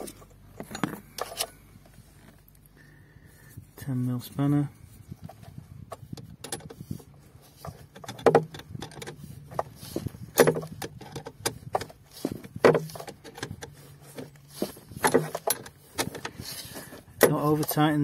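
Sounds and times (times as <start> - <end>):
metallic clanks: 7.7 - 17.9.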